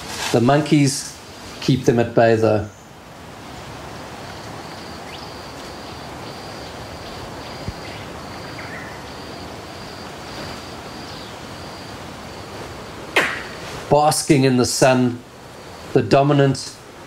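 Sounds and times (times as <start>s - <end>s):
steady outdoor hiss: 0.0s - 17.0s
high repeated animal call: 4.4s - 12.5s.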